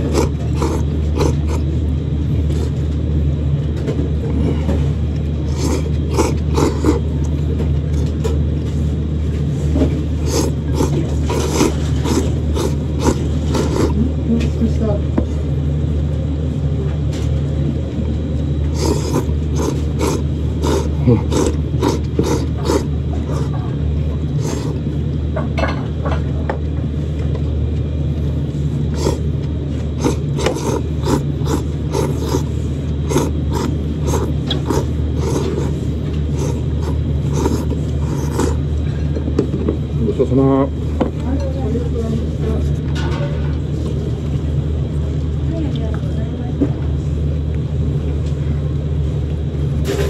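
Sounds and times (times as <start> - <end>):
person slurping noodles: 0.0 - 1.8, 2.4 - 2.8, 4.3 - 7.2, 9.6 - 14.1, 18.6 - 23.7, 24.3 - 25.0, 28.9 - 38.7
steady low hum: 0.0 - 50.0.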